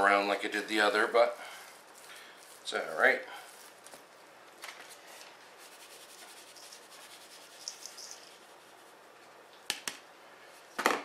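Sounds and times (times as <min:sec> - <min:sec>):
spice powder rustling patter: 0:00.4 - 0:09.1.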